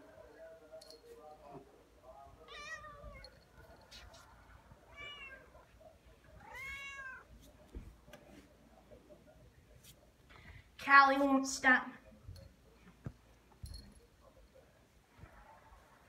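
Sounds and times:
cat meowing: 2.5 - 3.2, 4.9 - 5.6, 6.4 - 7.3.

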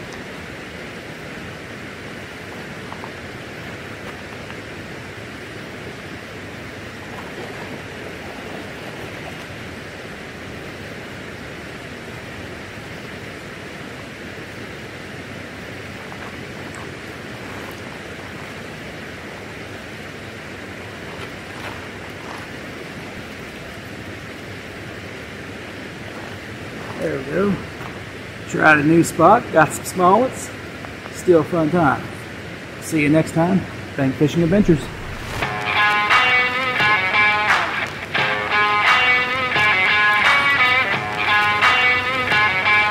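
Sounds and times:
water rushing: 0.0 - 42.9.

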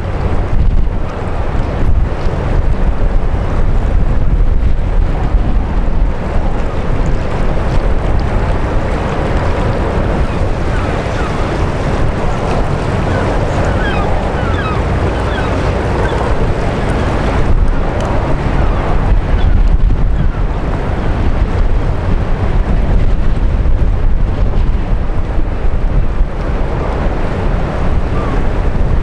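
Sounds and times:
water churned by ship: 0.0 - 29.0
wind buffeting microphone: 0.0 - 29.0.

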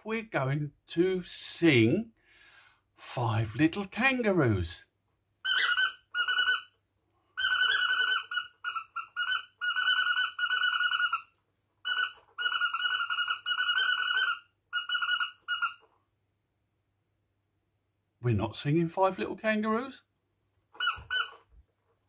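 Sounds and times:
high-pitched chattering squeaks: 5.5 - 6.7, 7.4 - 11.3, 11.9 - 15.9.

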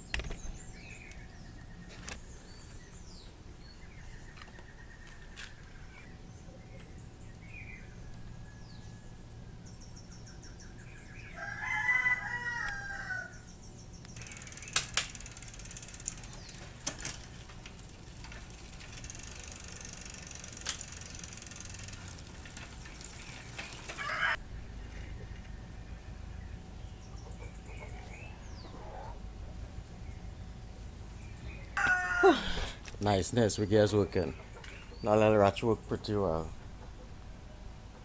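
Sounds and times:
small birds chirping: 0.0 - 11.6, 13.2 - 32.2, 32.8 - 38.0
rooster crowing: 11.3 - 13.4, 23.9 - 24.4, 31.8 - 32.6
bicycle wheel and chain whirring: 14.2 - 24.4.

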